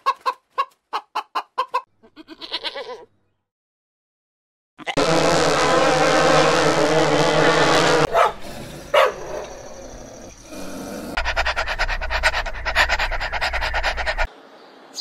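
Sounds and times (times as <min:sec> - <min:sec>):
bees buzzing: 0:05.0 - 0:11.3
dog panting: 0:10.3 - 0:14.3.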